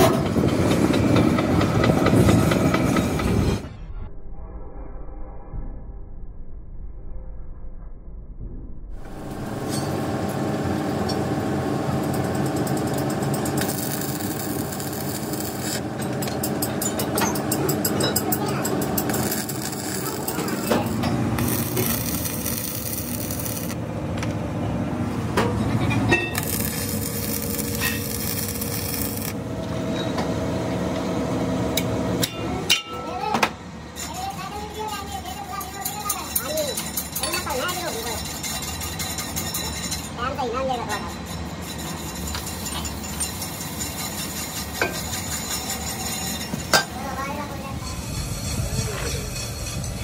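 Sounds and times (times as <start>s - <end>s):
metal lathe drone: 9.1s - 24.1s, 25.1s - 32.8s, 36.8s - 50.0s
cutting tool scraping steel: 12.9s - 23.8s, 26.0s - 29.4s, 34.0s - 40.2s, 40.9s - 47.0s, 47.7s - 50.0s
electric arc welding crackle: 13.1s - 16.5s, 18.5s - 23.8s, 26.4s - 29.6s.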